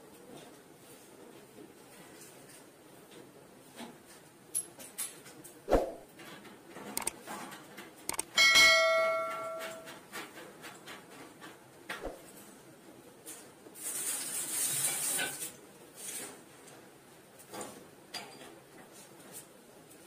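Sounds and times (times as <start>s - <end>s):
tool handling clicks: 7.0s - 7.2s, 8.1s - 8.4s.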